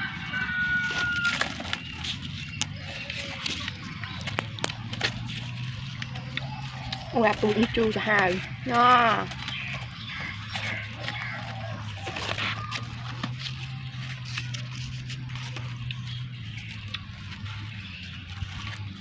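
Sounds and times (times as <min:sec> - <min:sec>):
fruit rind cracking: 0:01.1 - 0:07.5, 0:12.0 - 0:17.7.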